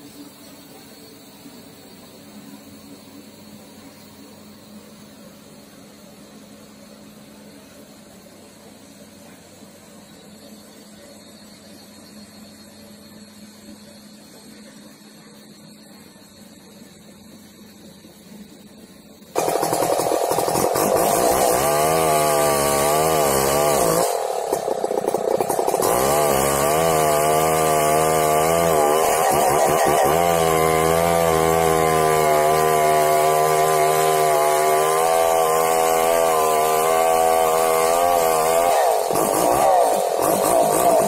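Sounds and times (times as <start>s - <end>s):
chainsaw cutting tree trunk: 19.4s - 41.0s.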